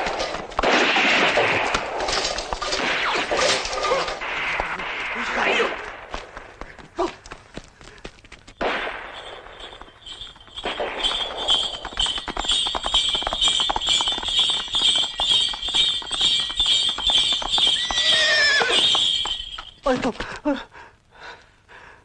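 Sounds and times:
horse hooves galloping: 5.8 - 20.4
harness bells jingling: 8.3 - 20.2.

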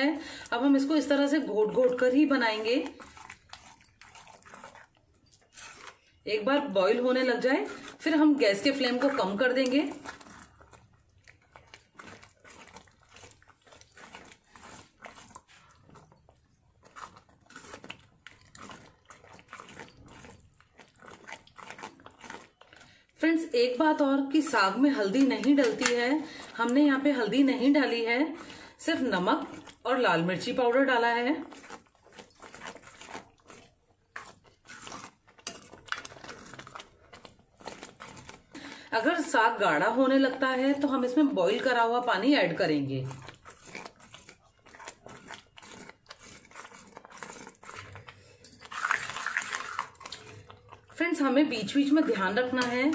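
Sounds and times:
ladle squelching and scraping in pan: 0.0 - 16.2, 32.6 - 46.6
metal spoon scraping a steel pan: 35.4 - 35.7, 52.1 - 52.9.

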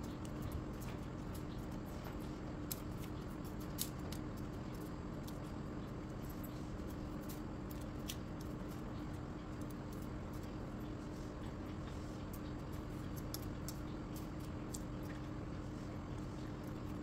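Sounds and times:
steady hum: 0.0 - 17.0
knife clicking and scraping garlic: 2.6 - 5.5, 12.2 - 15.0.

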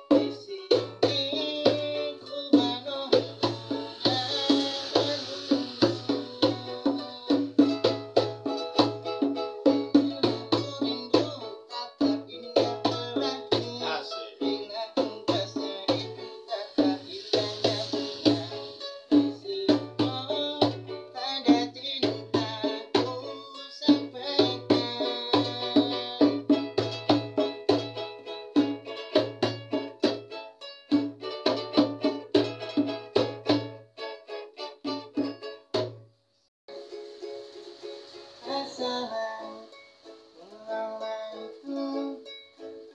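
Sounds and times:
ukulele strumming chords: 0.0 - 36.0, 36.7 - 42.9.

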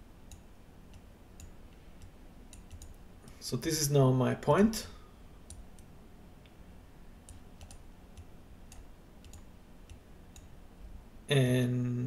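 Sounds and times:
low steady hum: 0.0 - 12.0
computer mouse clicks: 0.3 - 3.4, 5.4 - 6.6, 7.2 - 10.6.

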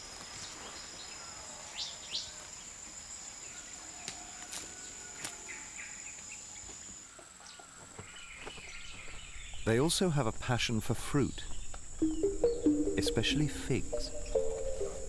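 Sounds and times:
high-pitched insect drone: 11.9 - 15.0.

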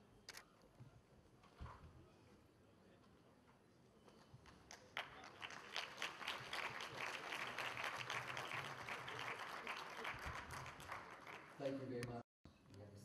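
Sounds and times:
audience applause: 5.0 - 11.6.

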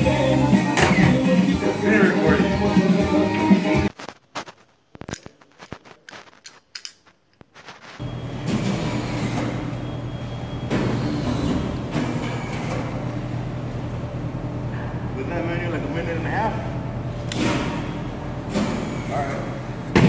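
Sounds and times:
music: 0.0 - 3.9.

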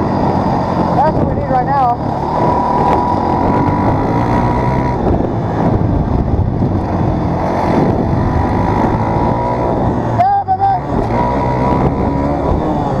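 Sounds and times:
dirt bike engine running: 0.0 - 13.0.

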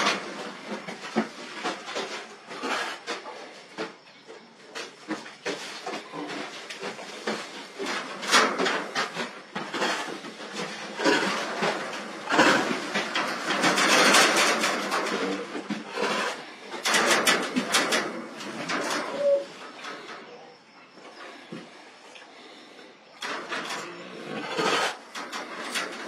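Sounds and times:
wire-mesh cage rattling: 6.3 - 20.3, 23.2 - 26.0.

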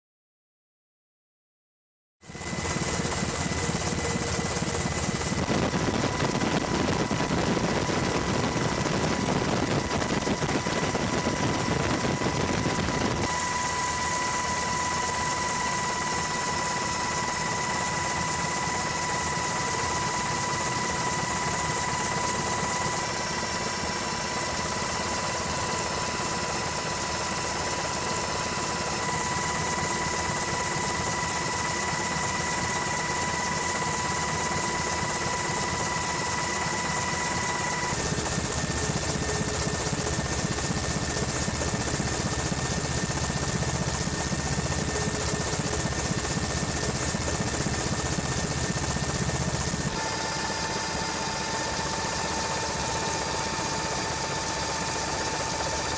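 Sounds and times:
helicopter engine and rotor noise: 2.2 - 55.9
high turbine whine: 2.3 - 55.9.

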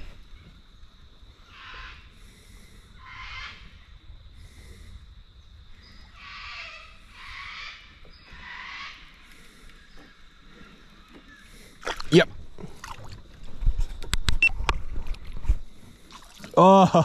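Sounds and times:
paddle swishing through water: 9.2 - 16.6.

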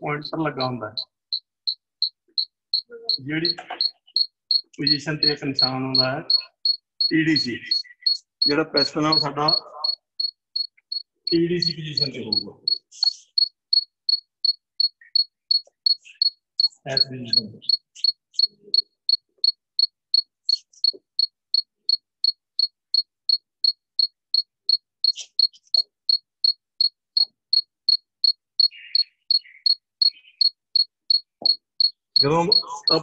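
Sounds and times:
high-pitched repeating chirp: 0.0 - 13.5, 14.8 - 18.9, 32.2 - 33.0.

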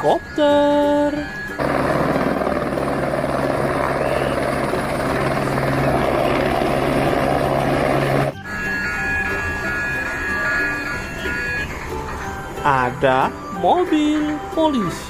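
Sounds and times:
helicopter rotor and engine: 1.2 - 12.6.

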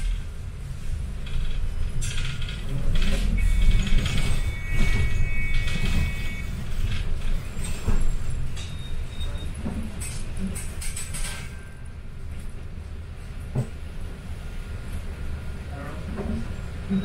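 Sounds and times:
bus engine and road rumble: 0.0 - 17.0
bus fittings rattling and clicking: 1.1 - 6.0, 6.6 - 11.7.

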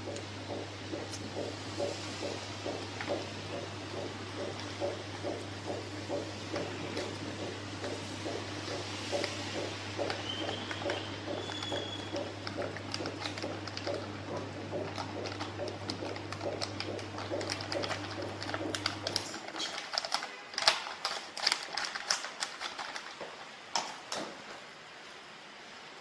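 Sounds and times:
plastic bag crinkling: 10.2 - 24.0.

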